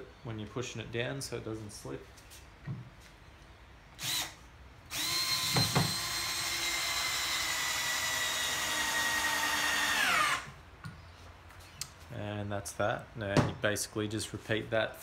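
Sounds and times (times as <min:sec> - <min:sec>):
cordless drill motor whine: 0:04.0 - 0:10.6.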